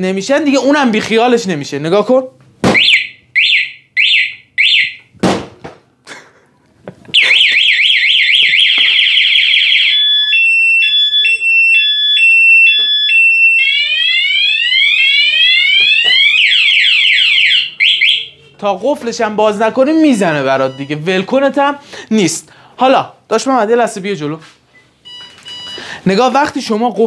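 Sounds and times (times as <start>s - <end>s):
motorcycle alarm siren: 2.8s - 5.1s, 7.2s - 18.5s.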